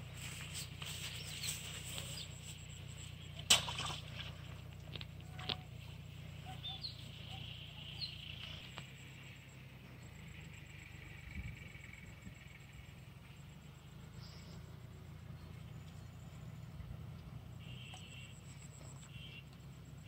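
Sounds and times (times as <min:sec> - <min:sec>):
bird chirps: 0:00.2 - 0:03.5, 0:05.4 - 0:09.2
faint high buzz: 0:06.8 - 0:20.0.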